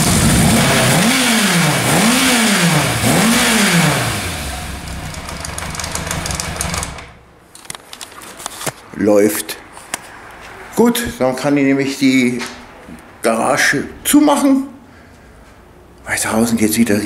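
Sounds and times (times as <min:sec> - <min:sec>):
motorcycle engine revving: 0:00.0 - 0:07.2.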